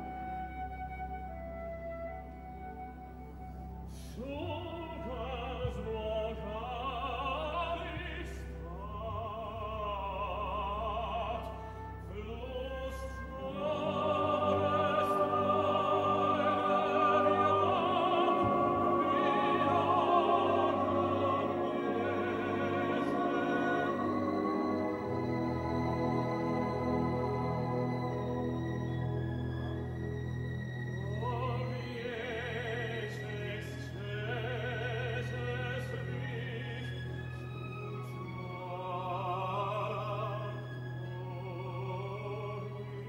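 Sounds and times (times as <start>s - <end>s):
orchestra playing: 0.0s - 43.0s
operatic solo voice singing: 3.9s - 25.4s.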